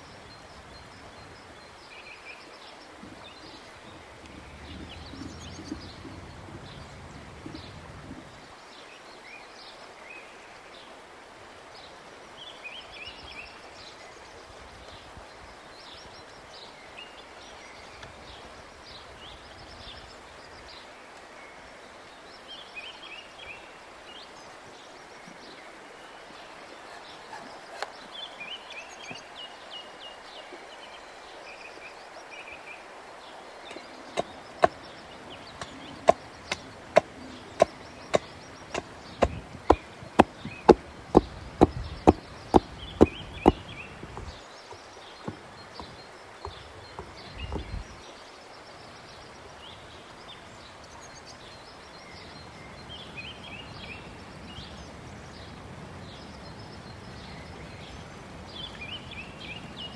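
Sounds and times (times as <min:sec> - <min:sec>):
outdoor background noise: 0:00.0 - 0:59.9
birds chirping: 0:22.3 - 0:30.2, 0:33.3 - 0:48.2
hatchet chopping wood: 0:23.7 - 0:27.9, 0:35.6 - 0:43.7.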